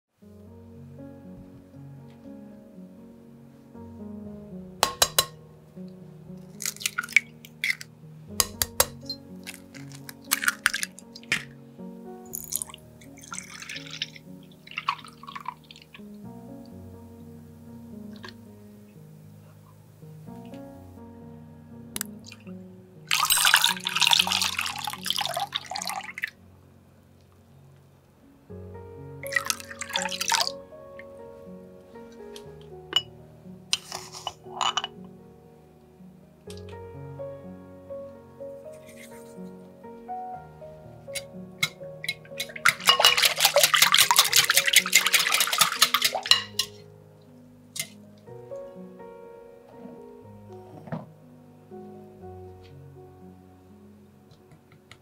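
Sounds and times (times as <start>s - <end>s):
background music: 0.1s - 55.0s
milk pouring and splashing: 6.6s - 7.8s, 9.4s - 11.5s, 12.3s - 15.8s, 23.1s - 26.3s, 29.2s - 30.5s, 42.1s - 46.8s
water pouring and splashing: 6.6s - 7.8s, 9.4s - 11.5s, 12.3s - 16.0s, 23.1s - 26.3s, 29.2s - 30.5s, 42.1s - 46.8s
whisk clicking against glass bowl: 42.1s - 46.7s
liquid sloshing: 42.1s - 46.8s.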